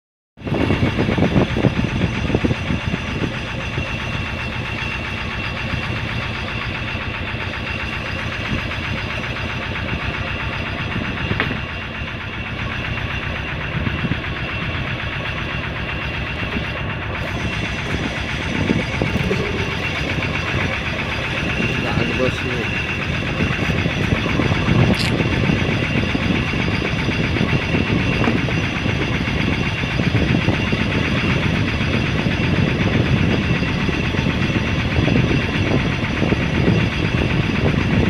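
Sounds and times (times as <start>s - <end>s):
boat engine running: 0.4s - 38.0s.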